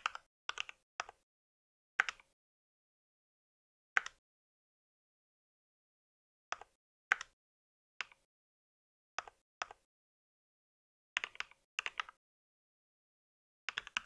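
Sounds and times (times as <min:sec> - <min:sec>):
mechanical keyboard typing: 0:11.2 - 0:12.2, 0:13.7 - 0:14.0.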